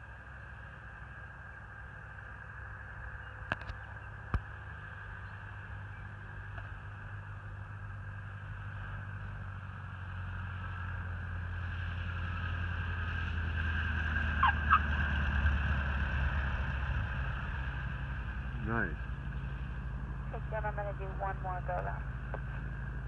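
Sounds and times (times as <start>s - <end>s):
light airplane engine drone: 0.0s - 23.0s
tires squeaking on touchdown: 14.3s - 14.9s.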